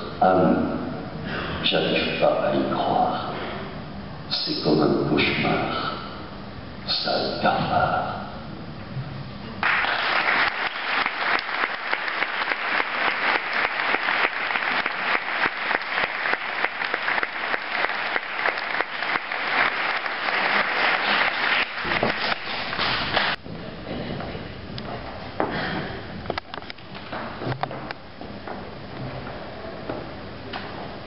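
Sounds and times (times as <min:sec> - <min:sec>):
audience applauding: 0:09.6 - 0:23.4.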